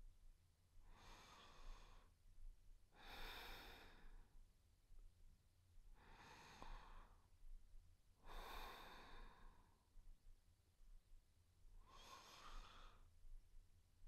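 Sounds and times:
woman breathing softly: 0:00.8 - 0:02.2, 0:02.9 - 0:04.4, 0:05.9 - 0:07.4, 0:08.2 - 0:09.9, 0:11.8 - 0:13.2.

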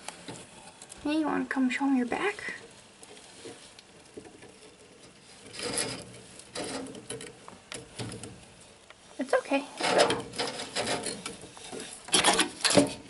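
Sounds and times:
claws scrabbling on wood: 0:00.0 - 0:09.1.

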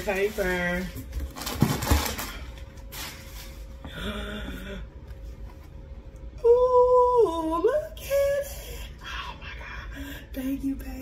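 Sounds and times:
packing paper rustling: 0:00.0 - 0:03.8.

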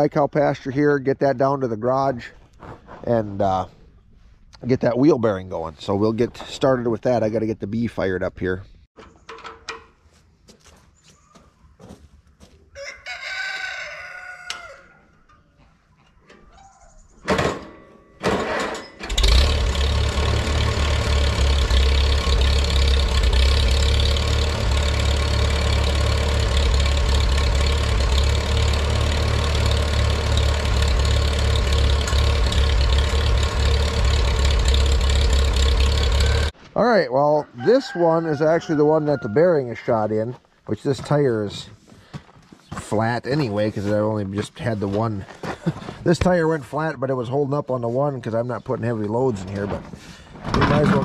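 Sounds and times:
rooster crowing: 0:12.7 - 0:15.1, 0:37.5 - 0:39.6
tractor engine starting and idling: 0:17.2 - 0:36.6, 0:49.0 - 0:51.0.

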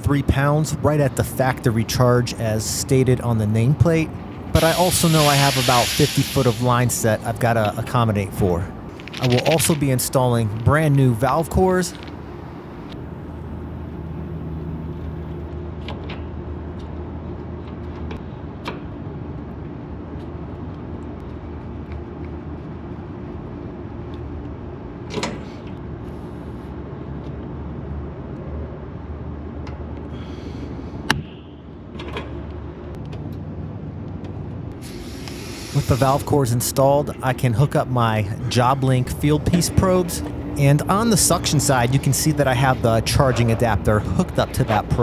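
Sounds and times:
low machine hum: 0:00.0 - 0:45.0
short hisses: 0:04.6 - 0:06.8, 0:34.8 - 0:36.3.

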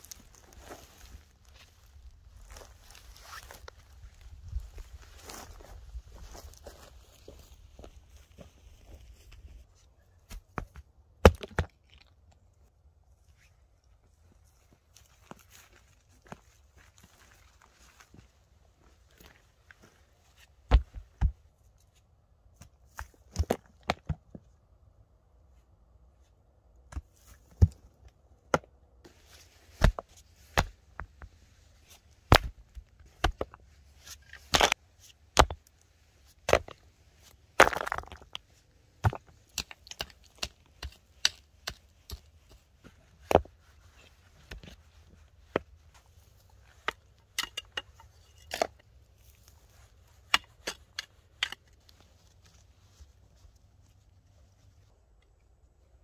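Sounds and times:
stone crunch: 0:10.3 - 0:12.3, 0:29.7 - 0:52.6
stones knocking together: 0:10.6 - 0:12.0, 0:34.4 - 0:35.7, 0:37.5 - 0:42.3.

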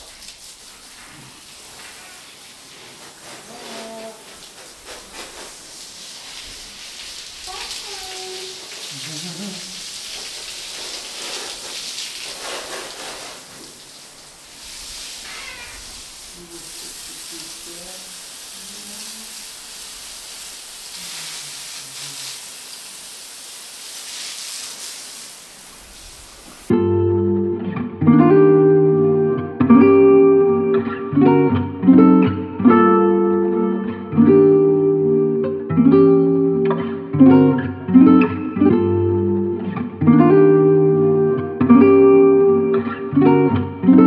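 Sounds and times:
running water hissing: 0:00.0 - 0:26.7
guitar music: 0:26.7 - 0:44.0.

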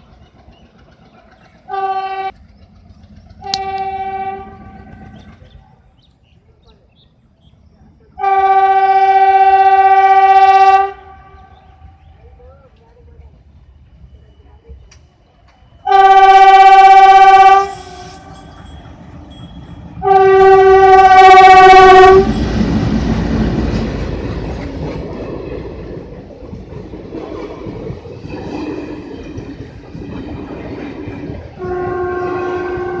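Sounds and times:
train rumble and wheel clatter: 0:00.0 - 0:33.0
locomotive horn blasts: 0:01.7 - 0:02.4, 0:03.4 - 0:05.0, 0:08.2 - 0:12.0, 0:15.8 - 0:18.4, 0:20.0 - 0:22.3, 0:31.6 - 0:33.0.

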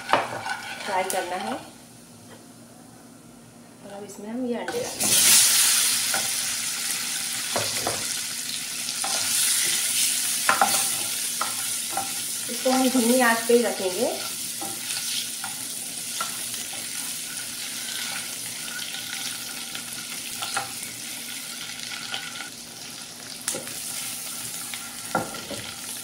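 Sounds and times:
spatula knocking and scraping pan: 0:00.0 - 0:01.5, 0:07.5 - 0:08.1, 0:10.4 - 0:12.2, 0:25.1 - 0:25.7
eggs sizzling in oil: 0:00.0 - 0:01.8, 0:04.7 - 0:26.0.

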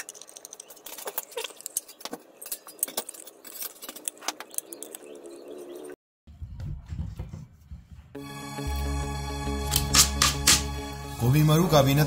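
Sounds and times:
can opener cutting tin: 0:09.7 - 0:10.7.

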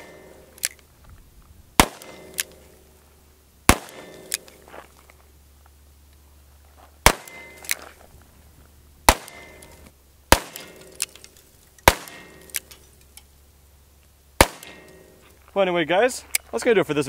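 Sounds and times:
revolver gunshots: 0:00.0 - 0:00.7, 0:01.8 - 0:02.9, 0:03.6 - 0:04.6, 0:07.0 - 0:07.8, 0:09.0 - 0:11.2, 0:11.8 - 0:12.8, 0:14.4 - 0:15.1.

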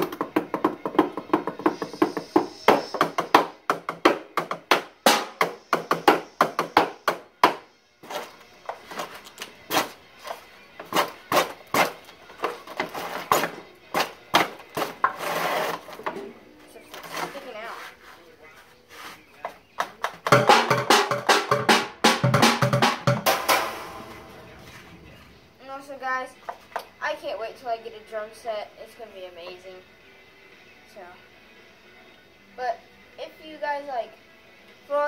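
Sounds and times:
drumsticks beating a bucket: 0:00.0 - 0:10.0, 0:19.6 - 0:24.5.

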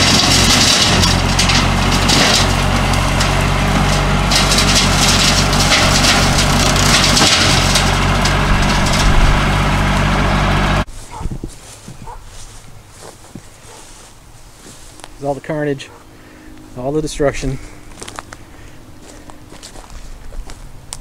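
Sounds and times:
rotary cutter shredding brush: 0:00.0 - 0:11.0
tractor diesel engine running: 0:00.0 - 0:21.0.

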